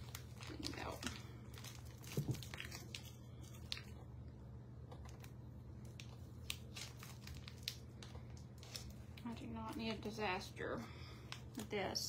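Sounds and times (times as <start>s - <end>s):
plastic bag crinkling: 0.0s - 4.1s, 4.9s - 10.4s
steady low hum: 0.0s - 12.0s.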